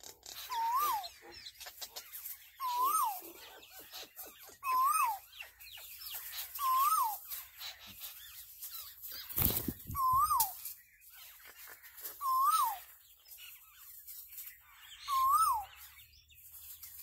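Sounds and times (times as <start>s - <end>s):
high bird chirps and twitters: 0.0s - 17.0s
bird call rising and falling: 0.3s - 1.2s, 6.6s - 7.3s, 9.3s - 10.7s, 12.2s - 12.8s, 15.0s - 15.8s.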